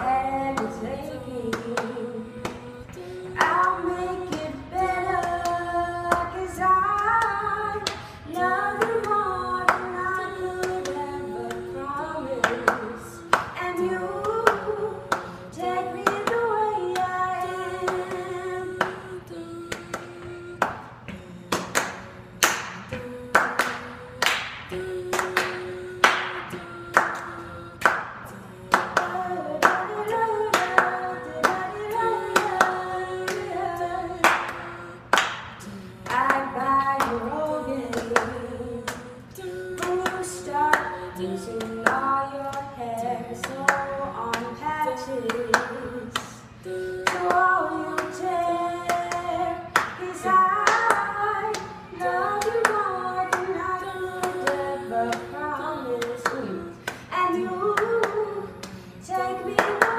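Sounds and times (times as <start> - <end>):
woman singing a pop song: 0.0 - 59.9
hand claps: 1.5 - 4.5, 12.4 - 15.3, 16.0 - 17.1, 19.7 - 33.6, 34.2 - 39.1, 39.7 - 40.9, 47.0 - 53.6, 56.0 - 57.1, 59.5 - 59.9.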